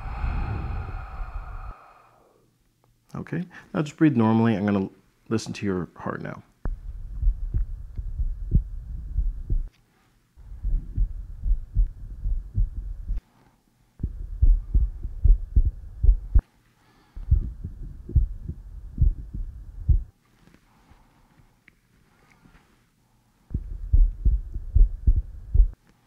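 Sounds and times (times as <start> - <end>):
faint hiss: 0.0 - 6.6
heartbeat lub-dub: 6.7 - 9.7, 10.4 - 13.2, 14.0 - 16.4, 17.2 - 20.1, 23.5 - 25.8.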